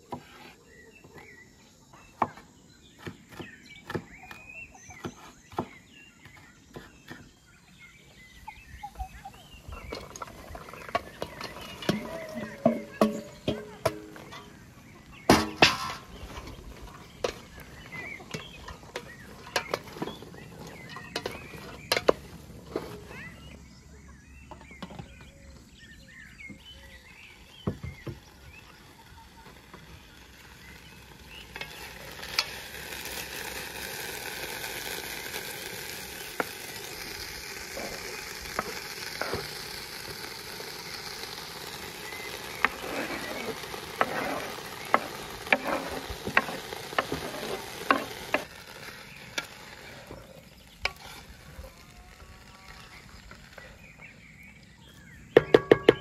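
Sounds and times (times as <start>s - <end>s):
wooden spatula scraping a pot: 0.0s - 0.8s, 9.7s - 23.5s, 29.6s - 33.6s, 34.8s - 54.2s
vegetables sizzling in a pot: 2.8s - 25.2s, 26.1s - 56.0s.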